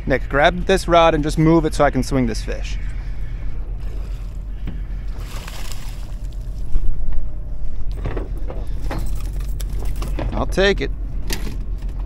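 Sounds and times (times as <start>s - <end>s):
boat engine drone: 0.0s - 12.0s
water splashing: 5.1s - 6.7s.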